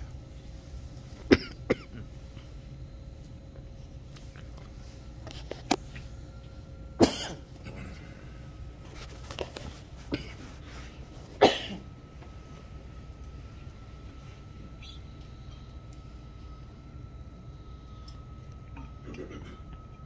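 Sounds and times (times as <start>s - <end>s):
person coughing: 1.3s - 2.1s, 7.0s - 8.1s, 10.1s - 10.4s, 11.4s - 11.8s.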